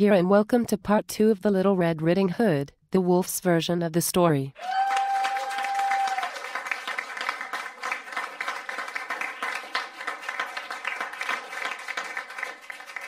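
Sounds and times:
audience applause: 4.6s - 13.0s.

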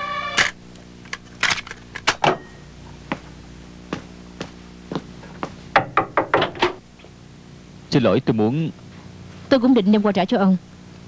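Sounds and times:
knocking on wooden door: 5.8s - 6.8s.

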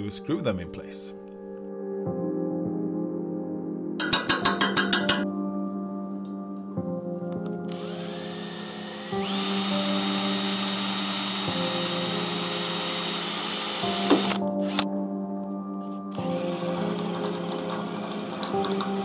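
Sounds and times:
background music: 0.0s - 19.0s
power drill boring into steel: 7.7s - 14.8s.

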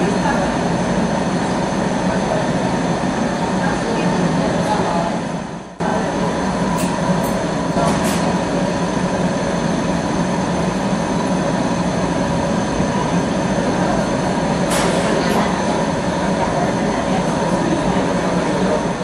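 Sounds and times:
gas furnace roaring: 0.0s - 19.0s.

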